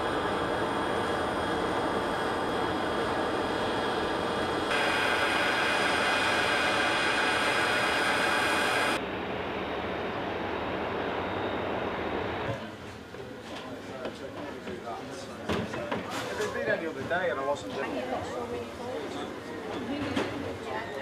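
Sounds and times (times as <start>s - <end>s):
jet engines whining: 0.0s - 12.5s.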